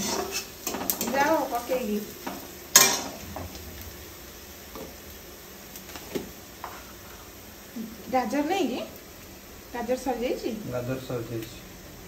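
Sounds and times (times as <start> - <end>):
spatula clattering on pan: 0.0 - 1.4, 2.2 - 3.5
stirring scrape in pan: 0.0 - 1.4, 2.2 - 3.6, 5.9 - 7.3
vegetables sizzling in oil: 0.0 - 12.0.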